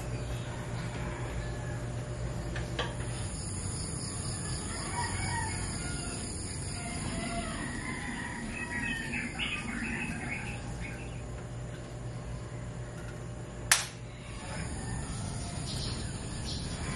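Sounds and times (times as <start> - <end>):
low background hum: 0.0 - 16.9
rooster crowing: 0.3 - 2.0, 4.0 - 10.9, 14.0 - 16.9
chickens calling: 3.9 - 13.0, 14.0 - 16.9.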